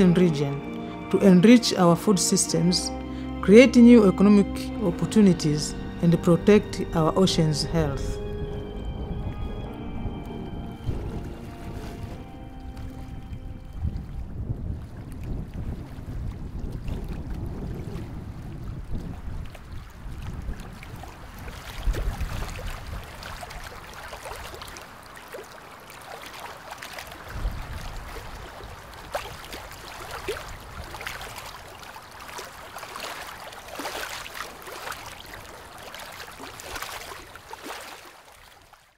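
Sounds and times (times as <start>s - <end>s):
water splashing and trickling: 0.0s - 38.9s
wind rumble on microphone: 7.8s - 24.7s, 27.2s - 31.8s.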